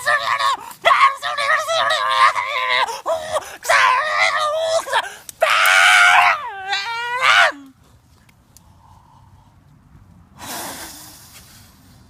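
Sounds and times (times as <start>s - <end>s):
person screaming: 0.0s - 7.7s.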